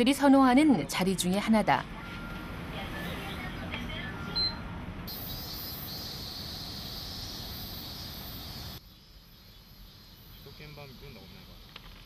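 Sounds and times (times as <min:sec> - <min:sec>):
cicadas buzzing: 0:05.1 - 0:12.0.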